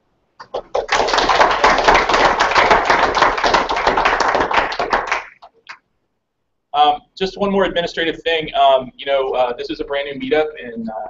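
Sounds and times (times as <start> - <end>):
audience applauding: 0.4 - 5.7.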